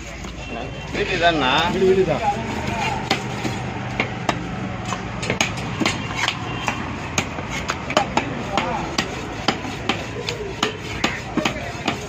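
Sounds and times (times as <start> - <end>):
knife chopping on wooden block: 2.8 - 12.0.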